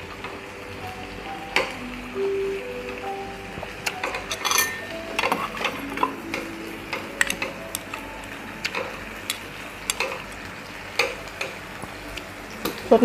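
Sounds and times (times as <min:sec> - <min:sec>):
metal chopsticks clicking on grill: 0:03.8 - 0:12.9.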